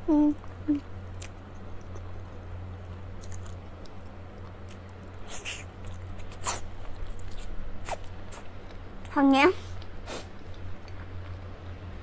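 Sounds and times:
chewing and mouth smacks: 3.2 - 8.8, 9.8 - 11.5.

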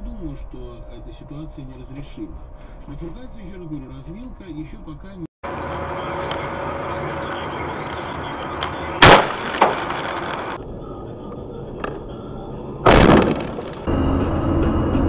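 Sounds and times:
road noise: 0.0 - 15.0
windshield shattering crash: 9.0 - 10.6, 12.9 - 13.9.

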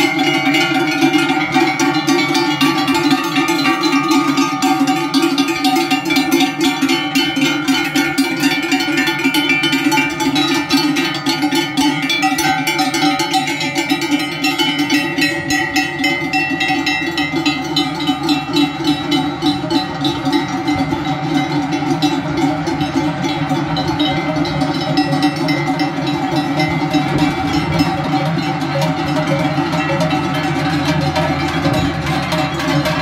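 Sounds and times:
cowbells clanging: 0.0 - 33.0.

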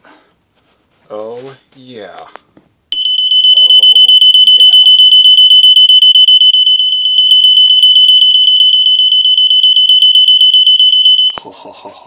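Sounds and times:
smoke alarm high-pitched tone: 2.9 - 11.4.

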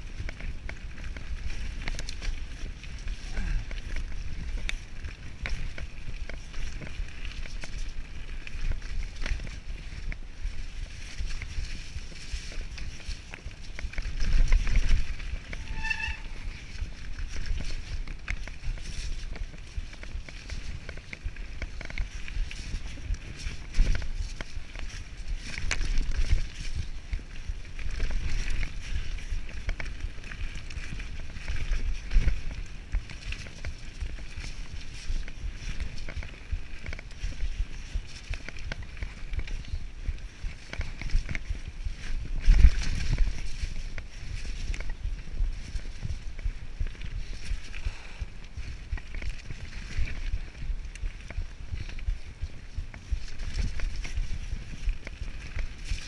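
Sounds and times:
bike rattling over bumps: 0.0 - 56.0
bike tyres crunching over stones: 0.0 - 56.0
wind buffeting microphone: 0.0 - 56.0
short squeak: 15.6 - 16.4.

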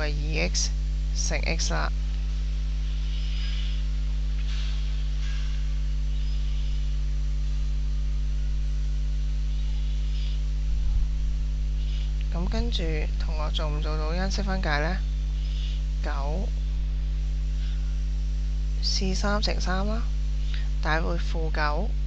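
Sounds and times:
electrical mains hum: 0.0 - 22.0
low bumps: 10.4 - 13.2.

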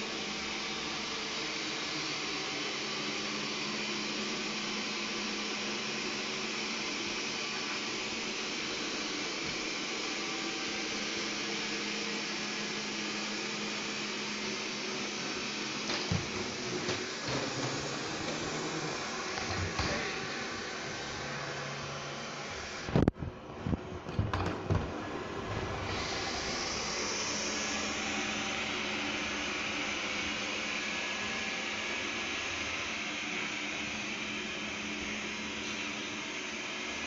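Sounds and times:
robot vacuum whirring: 14.4 - 23.1.

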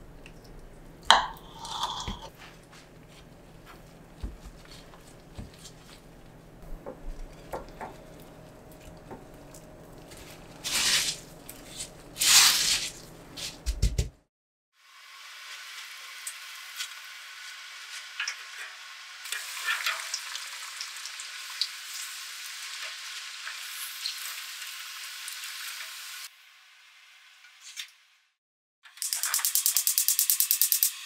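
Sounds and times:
soft taps and wet handling: 2.5 - 10.2
breadcrumbs rustling crunch: 9.4 - 13.6.

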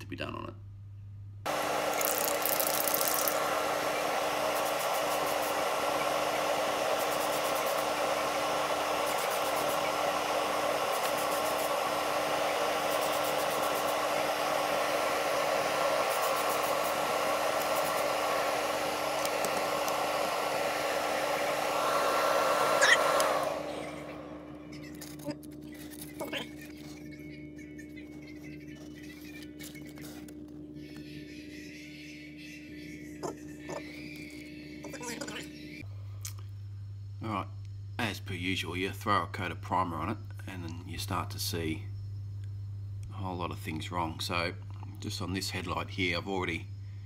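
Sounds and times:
spray can hissing: 1.5 - 23.8.

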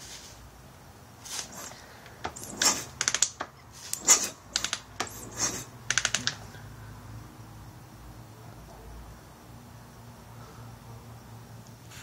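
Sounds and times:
sharp clicks: 2.2 - 5.1, 5.9 - 6.4
motorcycle kick-starter cranking: 2.2 - 6.4.

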